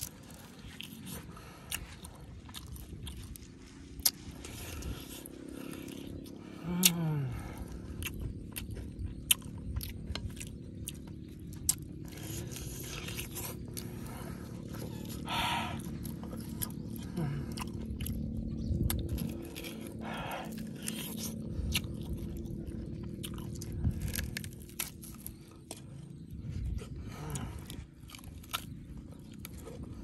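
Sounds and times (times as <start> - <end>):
biting and chewing meat: 0.0 - 30.0
person humming: 6.6 - 7.6.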